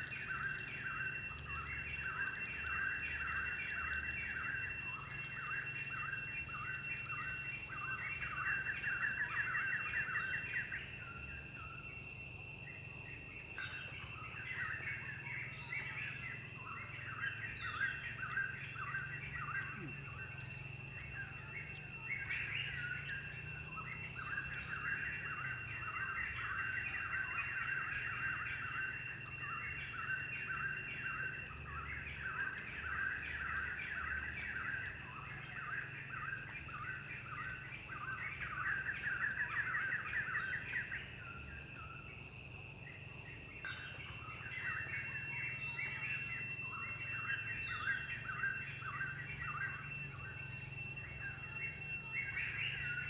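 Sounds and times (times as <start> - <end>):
high-pitched insect drone: 0.0 - 53.0.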